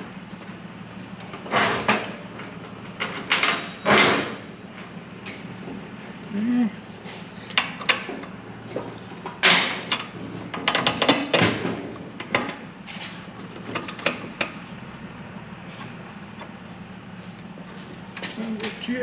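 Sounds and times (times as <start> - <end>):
metal tools clanking: 3.2 - 5.4.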